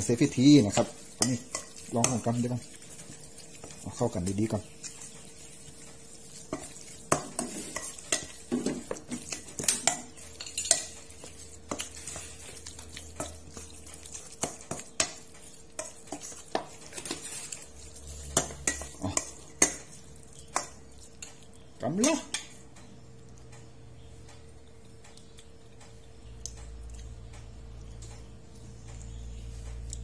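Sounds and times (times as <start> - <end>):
spoon clinking and scraping bowl: 0.0 - 22.6.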